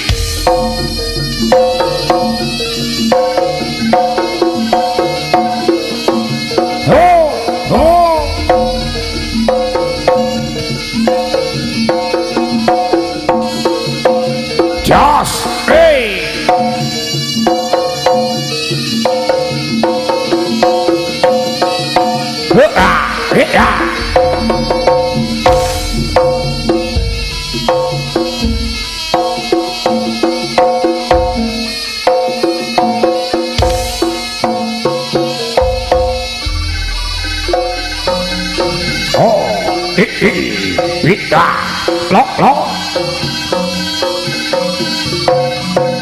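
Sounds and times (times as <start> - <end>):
drum beats: 0.0 - 46.0
gamelan metal notes: 0.0 - 46.0
metallophones playing melody: 0.0 - 46.0
deep low tone: 6.9 - 11.9, 23.0 - 27.4.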